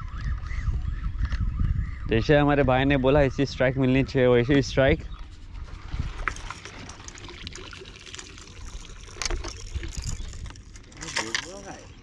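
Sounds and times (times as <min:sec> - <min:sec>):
wind rumbling on microphone: 0:00.0 - 0:12.0
water lapping against boat hull: 0:05.2 - 0:11.1.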